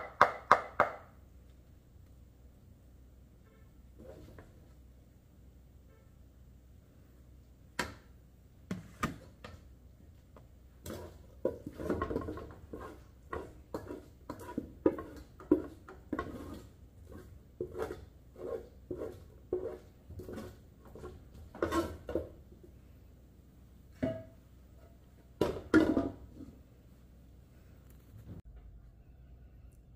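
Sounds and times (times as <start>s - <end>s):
spoon scraping and knocking pot: 10.8s - 22.4s, 24.0s - 26.5s.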